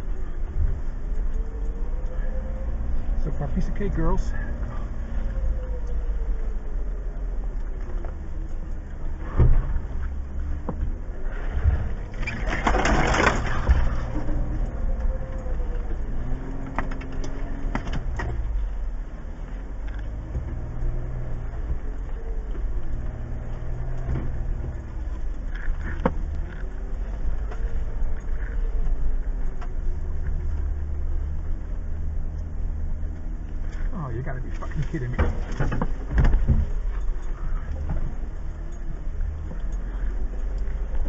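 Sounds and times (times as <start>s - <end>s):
car engine crawling: 0.0s - 41.0s
scraping and crunching: 11.3s - 14.7s.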